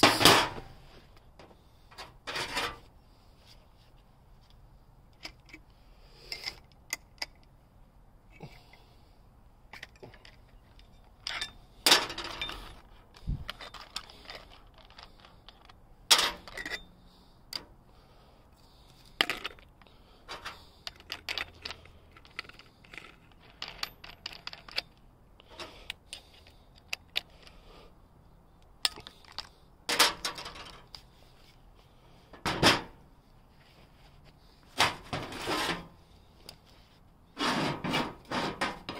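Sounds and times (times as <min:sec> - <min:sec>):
metal parts clinking on metal table: 0:09.8 - 0:12.8, 0:13.5 - 0:16.9.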